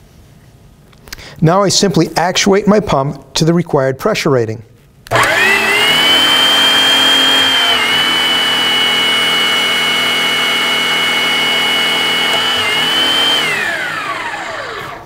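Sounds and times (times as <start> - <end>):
hydraulic pump motor whining: 5.1 - 15.0.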